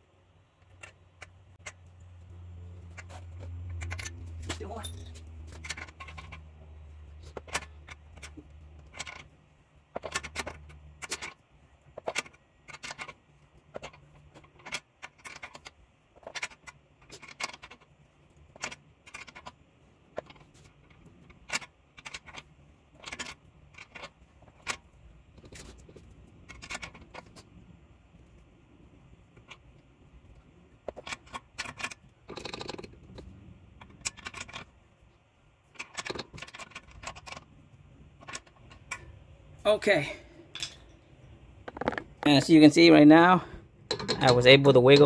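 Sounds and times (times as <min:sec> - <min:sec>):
low steady hum: 0:00.0 - 0:45.0
metal tools clinking: 0:02.9 - 0:06.5, 0:40.5 - 0:41.0, 0:43.9 - 0:45.0.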